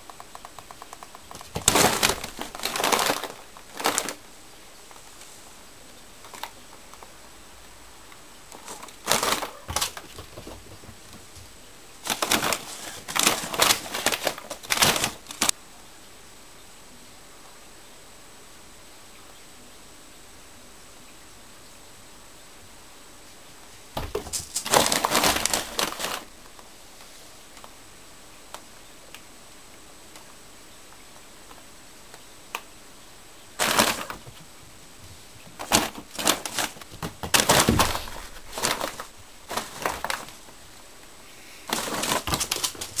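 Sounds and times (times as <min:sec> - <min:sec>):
paper rustling and crinkling: 0:01.3 - 0:04.3, 0:08.5 - 0:15.5, 0:24.0 - 0:27.2, 0:33.6 - 0:34.5, 0:35.4 - 0:40.6, 0:41.6 - 0:43.0.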